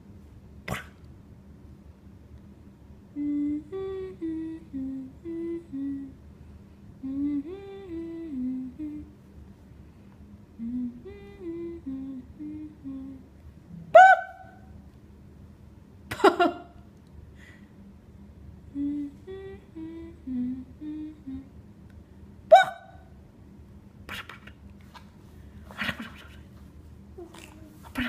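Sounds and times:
person humming a tune: 3.1s - 6.2s, 7.0s - 9.1s, 10.6s - 14.2s, 18.6s - 21.6s.

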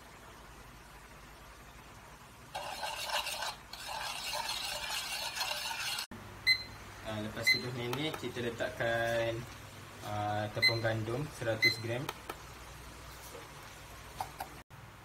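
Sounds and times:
metal spoon stirring in a bowl: 2.5s - 6.1s.

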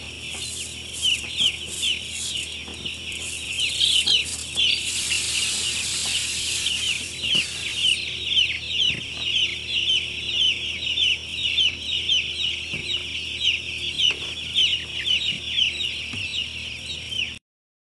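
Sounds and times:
chicks peeping: 0.0s - 17.4s
sprayer hiss: 3.2s - 8.0s.

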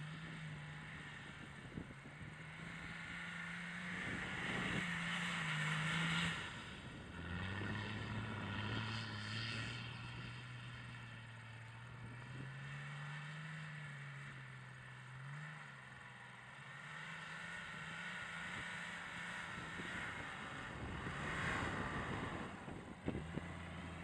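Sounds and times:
diesel engine running under load: 6.5s - 24.0s.

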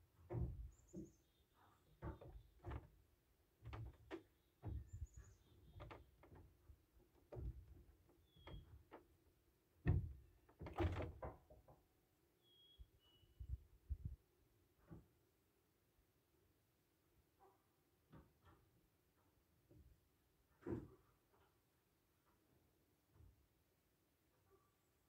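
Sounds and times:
knocks on wooden framing: 3.6s - 6.5s, 9.8s - 11.8s
bird chirps: 12.4s - 13.6s.

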